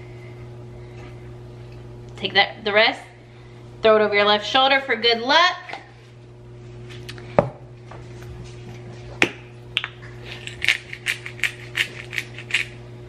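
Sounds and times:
steady low hum: 0.0s - 13.0s
spice grinder clicking: 10.4s - 12.8s.

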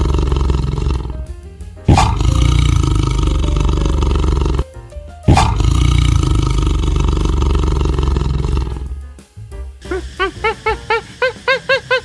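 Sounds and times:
tiger roaring: 0.0s - 1.3s, 1.9s - 4.6s, 5.3s - 9.0s
background music: 0.0s - 12.0s.

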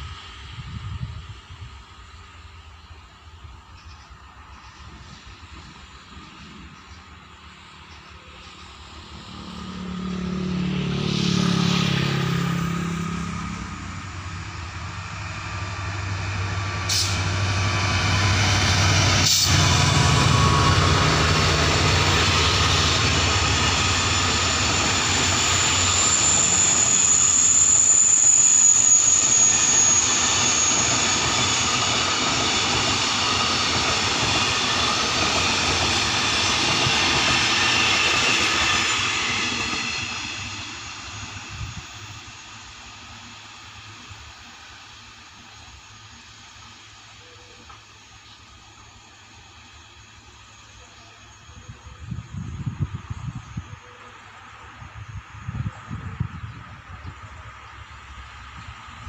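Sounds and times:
diesel locomotive engine passing: 0.0s - 59.0s
high wheel squeal: 11.1s - 42.8s.

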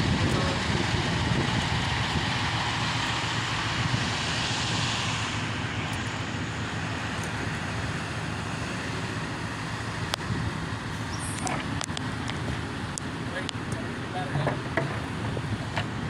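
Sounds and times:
low rumble: 0.0s - 13.5s.

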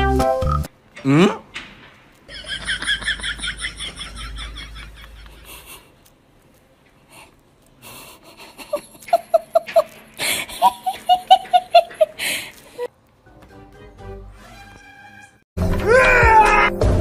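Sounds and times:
person laughing hard: 2.3s - 5.9s, 8.1s - 12.9s.

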